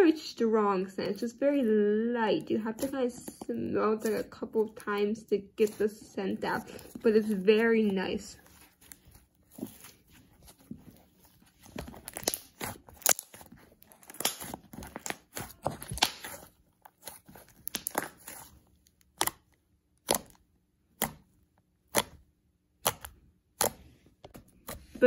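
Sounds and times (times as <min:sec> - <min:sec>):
slime squished by hand: 0:10.9 - 0:24.9
slime popping: 0:11.7 - 0:22.2.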